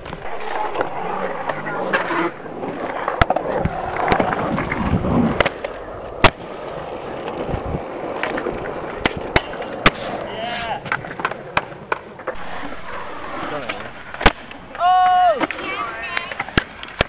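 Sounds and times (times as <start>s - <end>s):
skateboard wheels rolling on concrete: 0.0s - 17.0s
wooden clacks of skateboard: 2.9s - 6.5s, 7.2s - 12.4s, 13.5s - 17.0s.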